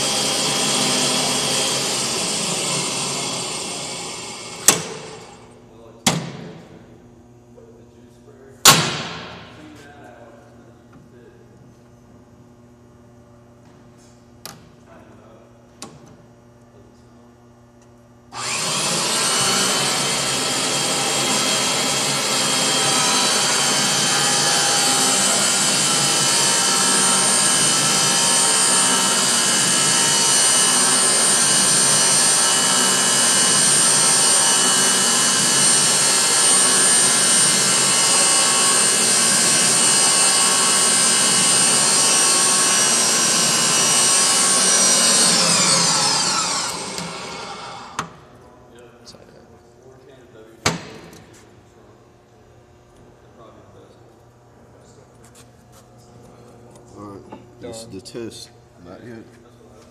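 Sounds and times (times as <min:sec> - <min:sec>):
pipe threading machine running: 0:00.0 - 0:05.5, 0:18.3 - 0:48.3.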